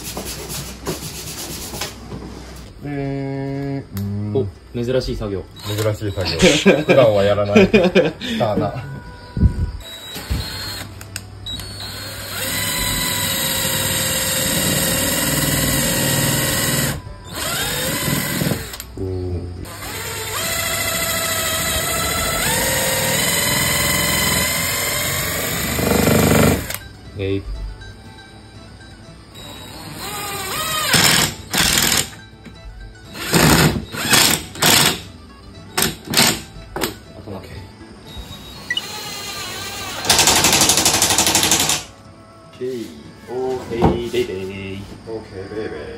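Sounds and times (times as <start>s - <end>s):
cordless drill boring wood: 5.6s - 7.2s, 9.8s - 10.9s, 11.5s - 18.8s, 19.7s - 26.8s, 29.4s - 32.1s, 33.2s - 35.0s, 38.2s - 41.8s.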